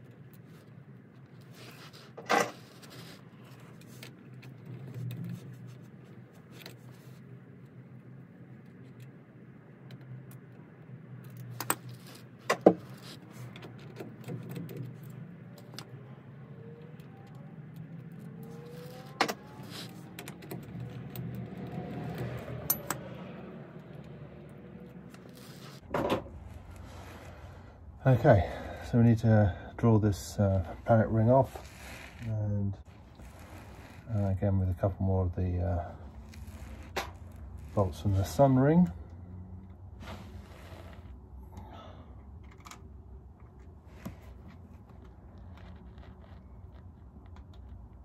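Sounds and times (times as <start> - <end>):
metal parts clinking on hub: 17.7 - 23.2.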